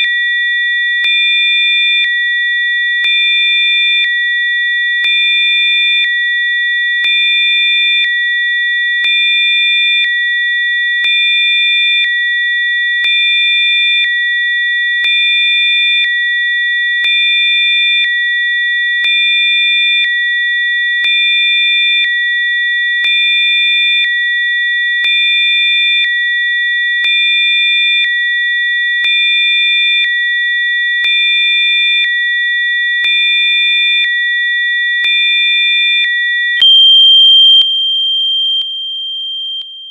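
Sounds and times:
high-pitched electronic sine tones: 36.6 - 39.9.

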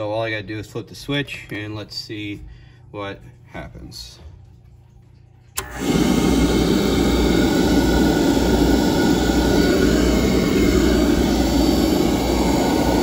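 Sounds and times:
low motor hum: 4.2 - 13.0
oil burner rushing: 5.6 - 13.0.

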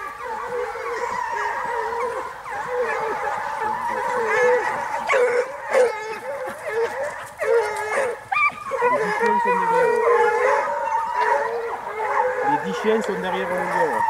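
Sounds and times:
hounds baying in chorus: 0.0 - 14.0
loud single hound calls: 0.0 - 14.0.

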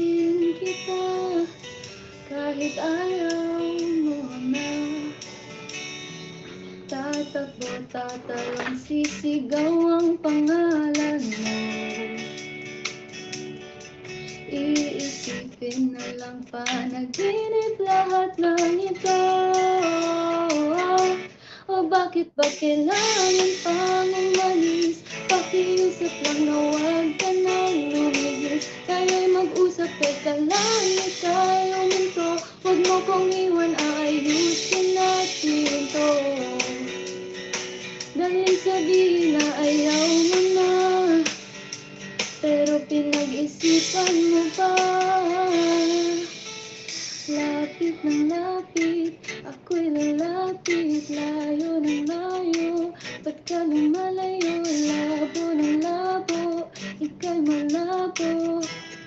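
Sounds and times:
woman singing into a microphone: 0.0 - 1.6, 2.2 - 5.3, 6.9 - 12.4, 14.5 - 37.0, 38.1 - 41.4, 42.4 - 46.4, 47.3 - 58.9
backing track music: 0.0 - 21.4, 22.4 - 59.0.

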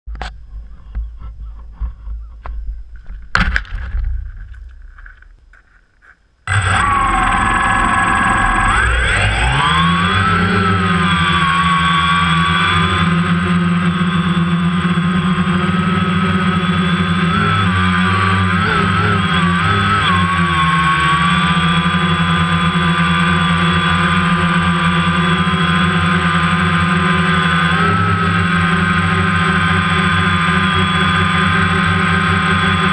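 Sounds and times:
drone motors whining: 6.5 - 32.9.

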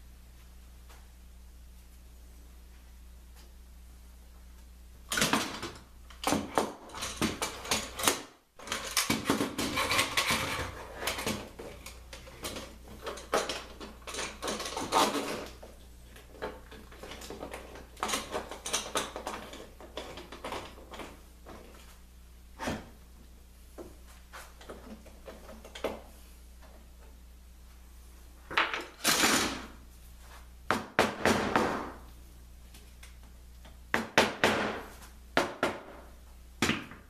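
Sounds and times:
clamps clicking and rattling on wood: 5.1 - 21.2.

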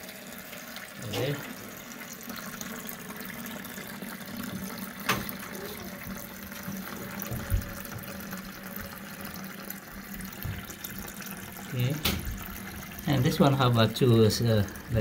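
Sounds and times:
water running into toilet tank: 0.0 - 15.0.

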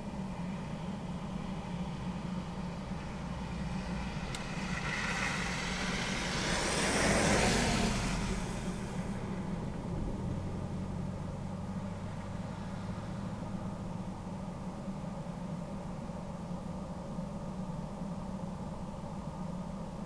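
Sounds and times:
steady low hum: 0.0 - 20.0
car tyres on slushy road: 2.8 - 14.2.

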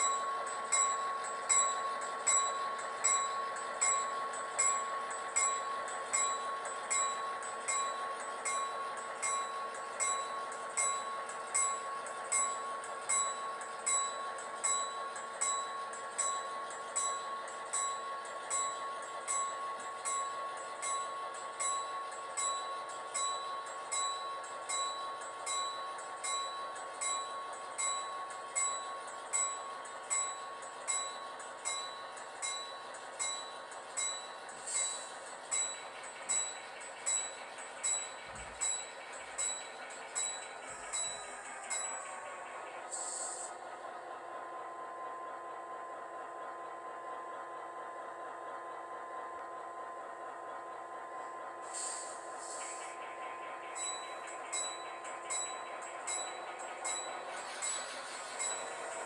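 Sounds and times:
model locomotive bell ringing: 0.0 - 48.0, 48.7 - 59.0
steady engine hum: 34.0 - 59.0.

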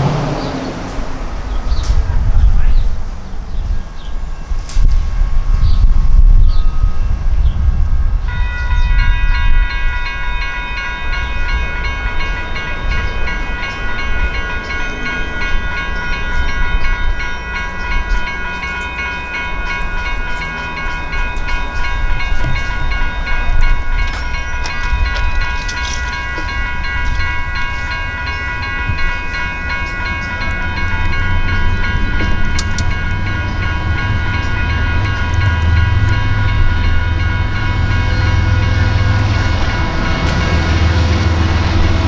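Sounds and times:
low rumble: 0.0 - 8.3
railroad crossing bells ringing: 0.0 - 42.0.

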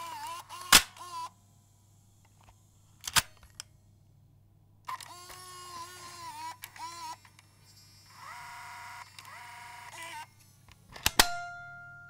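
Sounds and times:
camcorder tape mechanism whirring: 0.0 - 1.3, 4.9 - 10.4.

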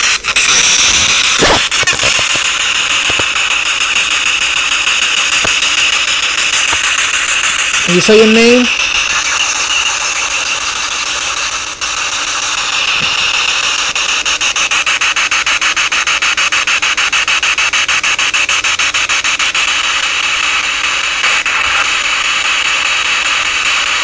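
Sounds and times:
radio static sweeping: 0.0 - 24.0.

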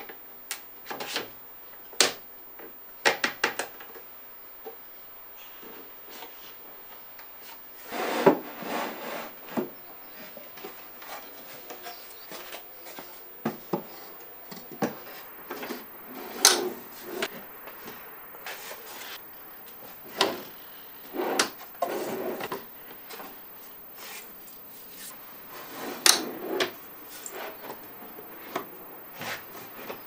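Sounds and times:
drawers sliding on metal runners: 15.6 - 17.3.

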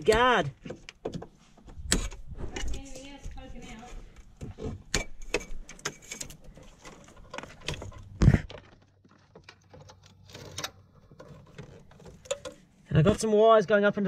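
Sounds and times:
wiring rustling and clicking: 0.0 - 12.7.

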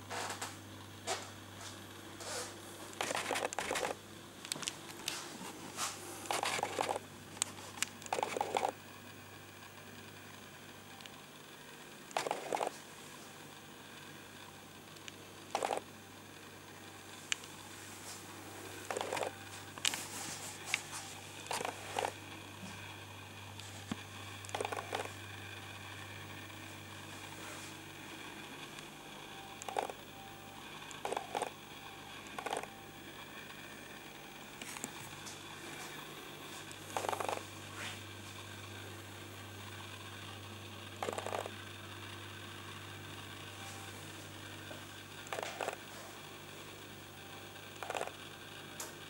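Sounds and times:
faint low hum: 0.0 - 49.0
rustling and clicking handling noise: 0.1 - 8.8, 17.2 - 22.9.

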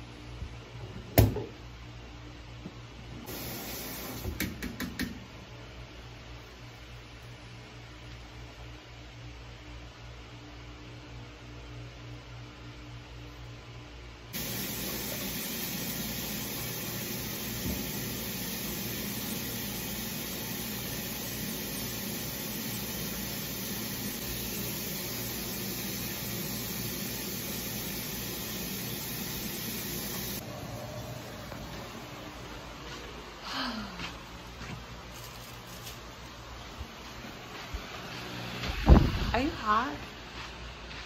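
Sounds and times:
tap water running into sink: 3.3 - 5.1, 14.4 - 30.4.

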